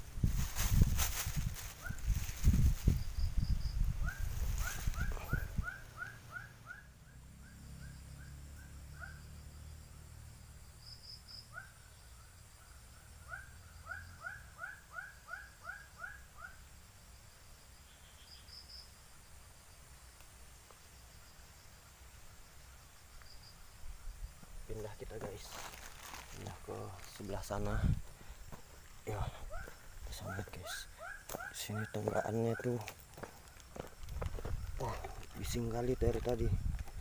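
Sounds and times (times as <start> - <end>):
animal chirping calls: 4.0 - 9.2, 13.2 - 16.6, 29.4 - 32.8.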